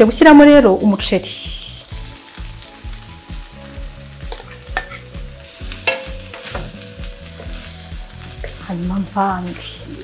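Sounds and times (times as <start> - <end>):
frying sizzle: 0.0 - 10.0
spoon clinking against bowl: 5.9 - 6.5.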